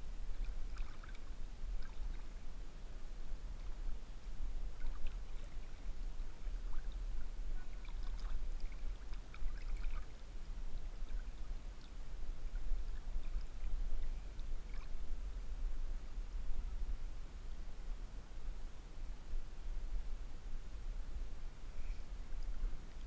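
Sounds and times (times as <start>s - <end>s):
river water lapping and trickling: 0.0s - 16.3s, 21.6s - 23.0s
steady low rumble: 0.0s - 23.0s
small splashes and drips: 0.3s - 2.4s, 4.7s - 10.2s, 10.9s - 15.0s.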